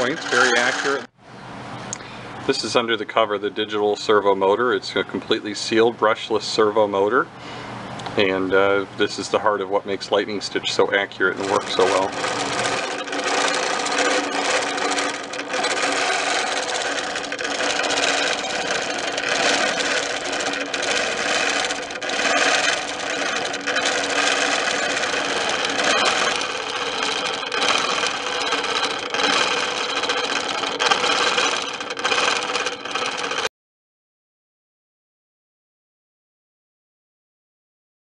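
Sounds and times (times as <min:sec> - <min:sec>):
quilting machine stitching: 0:00.0 - 0:01.1, 0:11.3 - 0:33.5.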